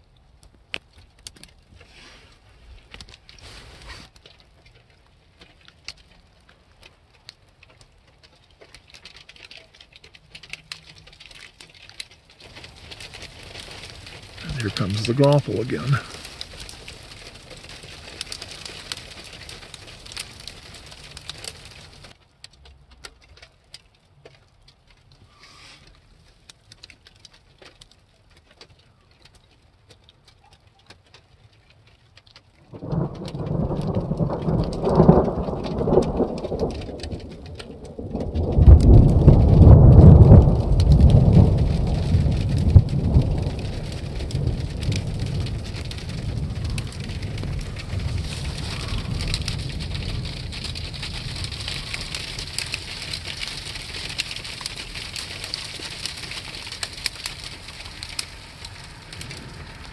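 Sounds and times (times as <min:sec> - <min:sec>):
snow pellets ticking: 0:02.5 - 0:59.9
rolling thunder: 0:12.8 - 0:22.1, 0:32.7 - 0:59.9.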